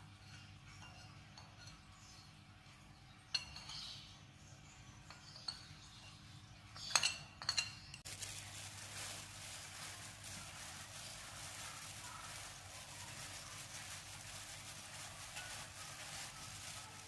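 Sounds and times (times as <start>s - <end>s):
hand mixing flour in bowl: 8.0s - 17.0s.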